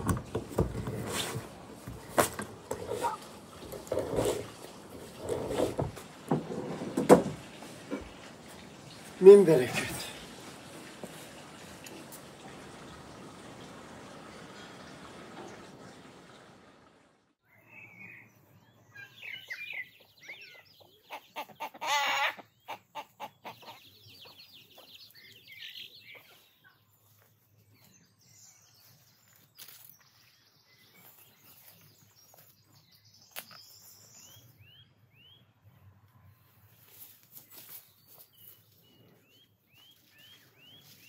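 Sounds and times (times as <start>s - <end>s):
small birds chirping: 17.4s - 41.0s
chickens clucking: 19.8s - 25.0s.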